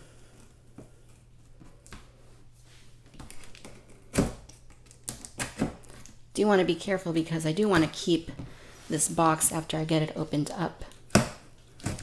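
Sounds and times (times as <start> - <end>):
tape and cardboard crackling: 3.0 - 6.2, 10.8 - 12.0.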